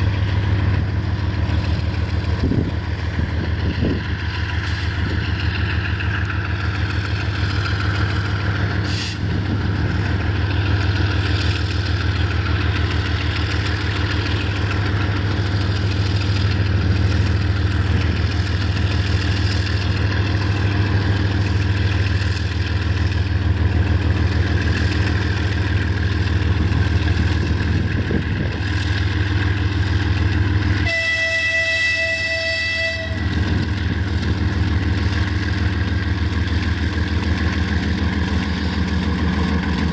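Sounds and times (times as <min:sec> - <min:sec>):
diesel locomotives droning: 0:00.0 - 0:39.9
locomotive horn: 0:30.8 - 0:33.4.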